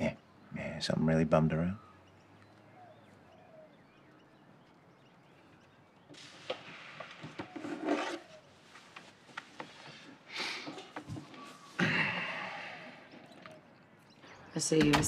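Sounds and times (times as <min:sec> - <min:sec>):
rustling: 0:06.1 - 0:12.4
short scrape: 0:06.2 - 0:08.5.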